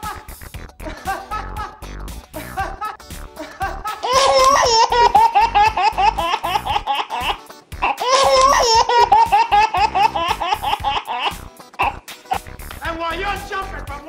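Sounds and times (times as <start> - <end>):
baby laughing: 2.4 - 12.4.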